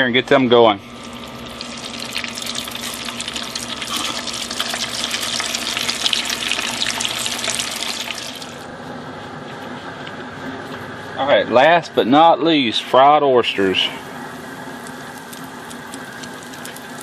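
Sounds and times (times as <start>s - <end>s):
food sizzling in deep-fryer oil: 0.9s - 8.6s, 14.3s - 17.0s.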